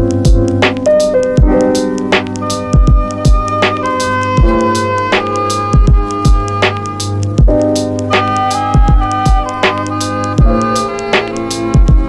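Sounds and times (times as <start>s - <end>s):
kick drum thumps: 0.0s - 0.5s, 1.4s - 1.6s, 2.7s - 3.6s, 4.4s - 4.7s, 5.8s - 6.6s, 7.4s - 7.6s, 8.8s - 9.5s, 10.4s - 10.6s, 11.8s - 12.0s
sharp drum hits: 1.4s - 9.8s.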